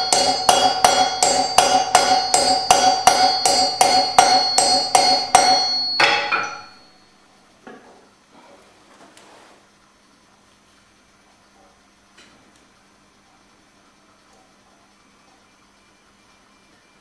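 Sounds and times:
hammer striking metal punch: 0:00.0 - 0:07.0.

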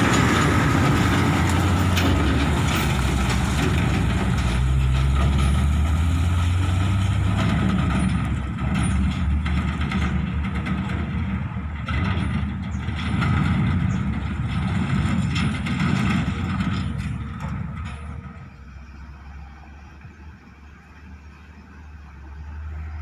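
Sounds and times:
diesel truck engine driving: 0:00.0 - 0:23.0.

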